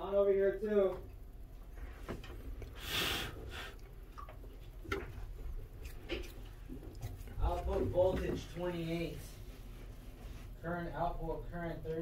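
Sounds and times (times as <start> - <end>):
low steady hum: 0.0 - 12.0
loud breath close to microphone: 2.8 - 3.8.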